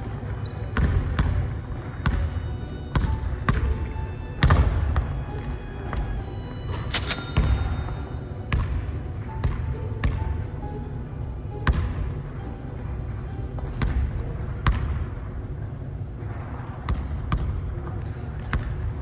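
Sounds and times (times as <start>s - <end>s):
sneaker squeaks: 0.1s - 8.6s
basketball bouncing on wooden floor: 2.9s - 5.1s.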